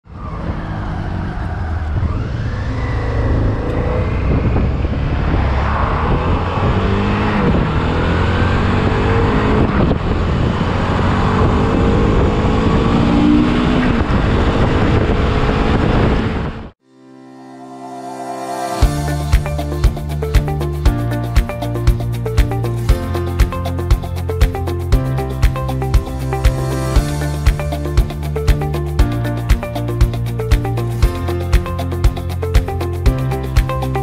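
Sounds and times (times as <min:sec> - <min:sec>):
motorcycle engine droning: 0:00.1 - 0:16.6
wind rushing over microphone: 0:00.1 - 0:16.8.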